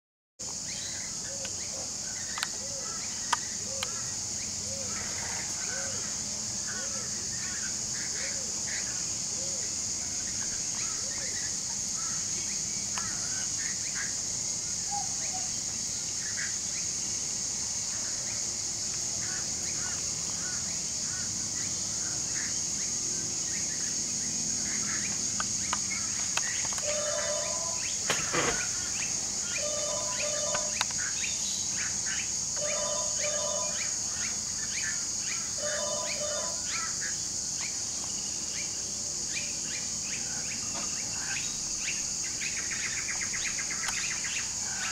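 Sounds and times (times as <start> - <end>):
high insect drone: 0.4 - 44.9
bird chirps: 23.5 - 37.8.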